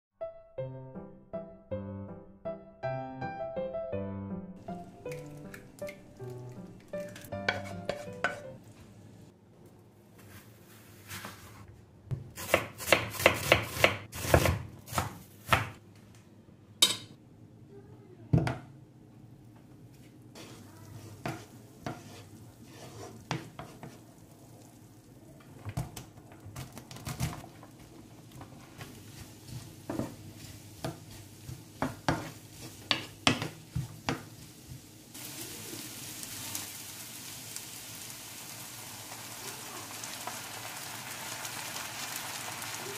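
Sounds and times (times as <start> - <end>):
onions sizzling in pan: 4.6 - 8.6, 20.3 - 42.9
spatula scraping frying pan: 7.3 - 8.6, 20.4 - 24.1, 27.4 - 34.9
knife chopping on board: 12.1 - 15.8.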